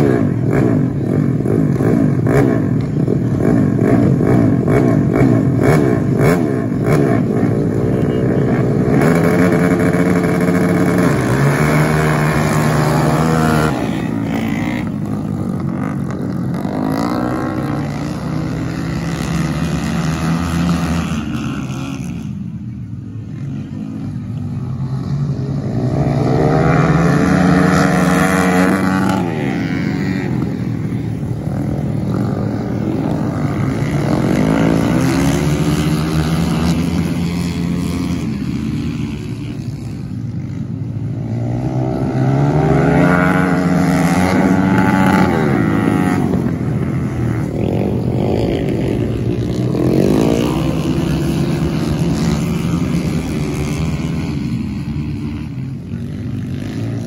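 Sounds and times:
motorcycle engines revving: 0.0s - 57.0s.

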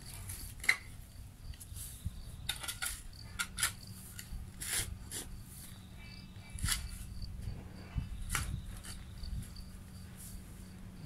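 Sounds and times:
shovel scraping against stones: 2.5s - 5.3s.

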